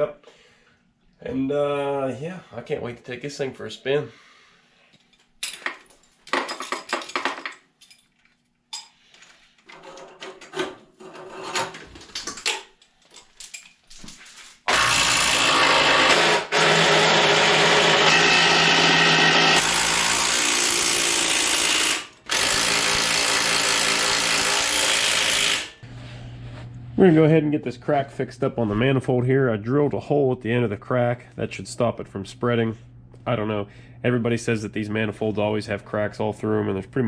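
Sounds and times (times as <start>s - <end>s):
hand tools clinking and rattling: 4.9s - 14.7s
cordless power tool running: 14.7s - 25.8s.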